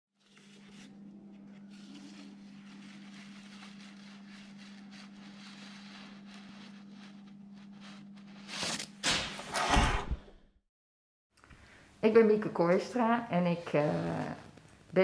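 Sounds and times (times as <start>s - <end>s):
soft rustles: 0.2s - 8.5s.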